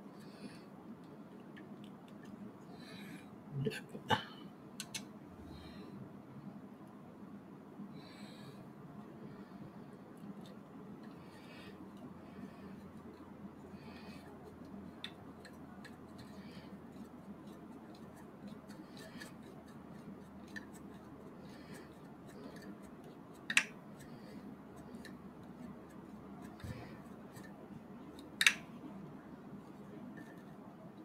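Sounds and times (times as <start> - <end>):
sharp clicks: 4.8 - 5.1
small plastic parts clicking: 4.8 - 5.1, 17.0 - 24.1, 26.4 - 28.7.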